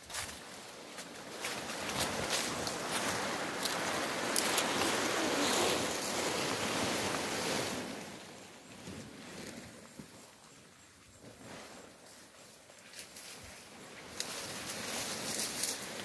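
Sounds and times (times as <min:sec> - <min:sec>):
tarp rustling over dry leaves: 0:00.0 - 0:09.8, 0:11.3 - 0:16.0.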